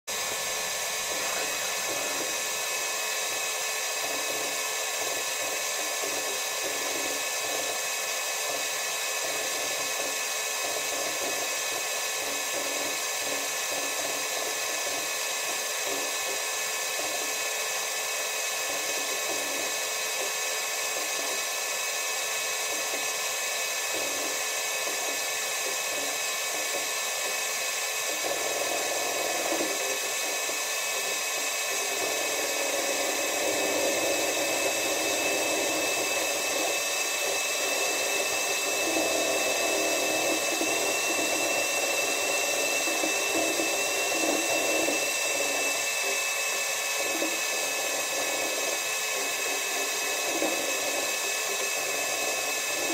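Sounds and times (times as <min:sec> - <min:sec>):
high whining tones: 0:00.1 - 0:02.8.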